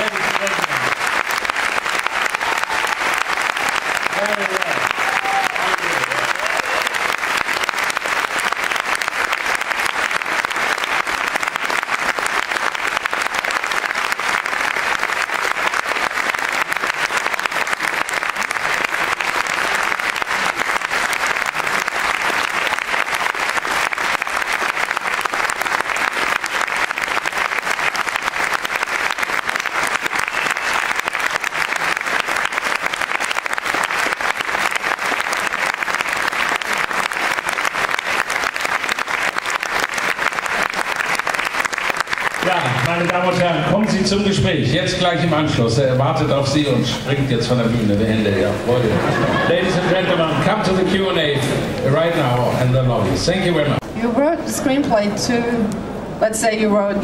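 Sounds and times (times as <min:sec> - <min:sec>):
audience applauding: 0:00.0 - 0:53.8.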